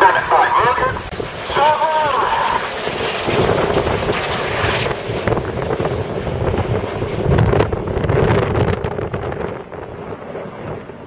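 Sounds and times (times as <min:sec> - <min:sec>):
jets flying past: 0:00.0 - 0:11.0
wind buffeting microphone: 0:00.0 - 0:11.0.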